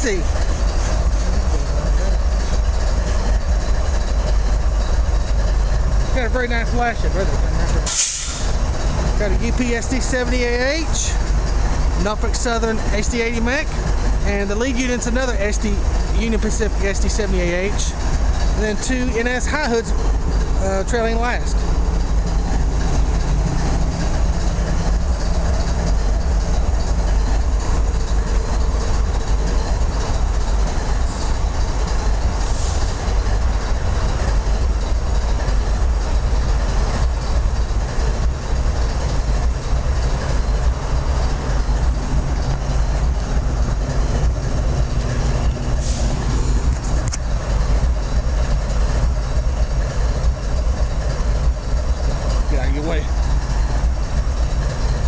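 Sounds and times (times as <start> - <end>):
diesel locomotive engine rumble: 0.0 - 55.0
train wheels on rails: 0.0 - 55.0.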